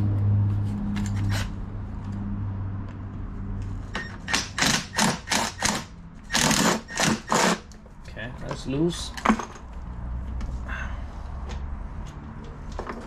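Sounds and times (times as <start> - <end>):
ratchet buzzing bursts: 4.2 - 7.7.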